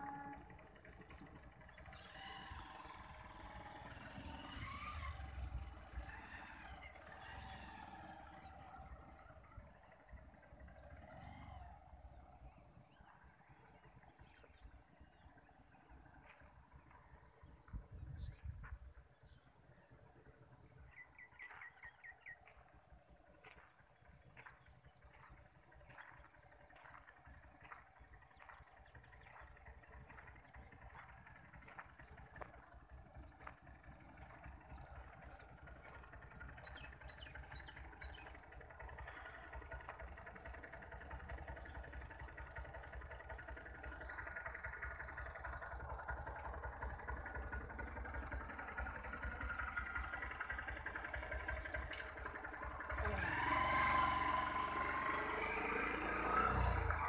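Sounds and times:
motor scooter engine running: 0.0s - 57.0s.

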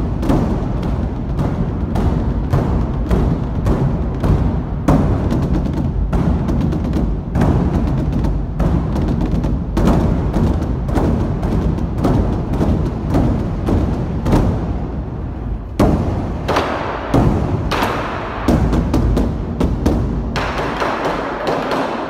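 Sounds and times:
large drums beaten rapidly: 0.0s - 21.9s.

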